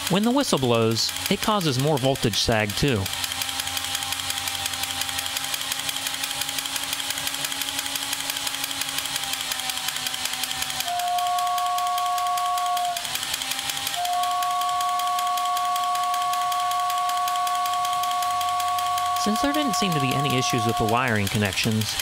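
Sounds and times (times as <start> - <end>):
toy train motor rattling: 0.0 - 22.0
toy train whistle: 0.0 - 22.0.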